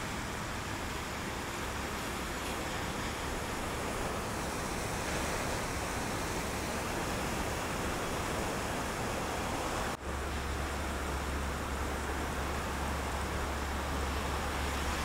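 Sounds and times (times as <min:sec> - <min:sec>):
ocean surf breaking: 0:00.0 - 0:15.0.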